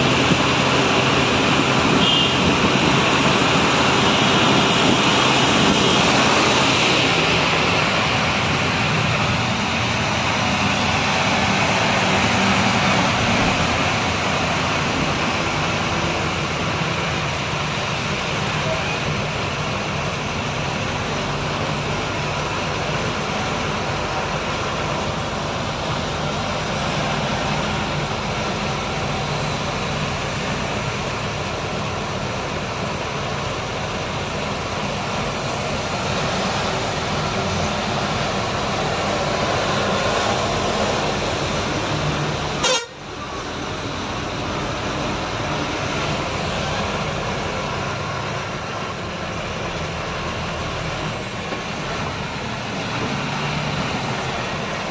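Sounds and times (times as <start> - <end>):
road noise on wet road: 0.0 - 54.9
truck engine: 0.0 - 54.9
vehicle horns honking: 1.9 - 2.5, 42.6 - 43.1.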